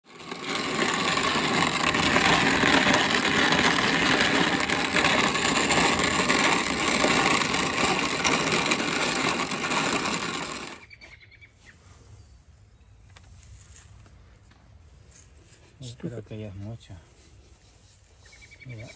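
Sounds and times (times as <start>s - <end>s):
grain mill grinding: 0.0s - 10.9s.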